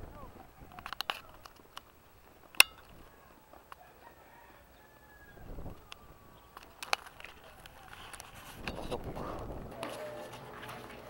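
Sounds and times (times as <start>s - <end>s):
rooster crowing: 3.2s - 6.6s.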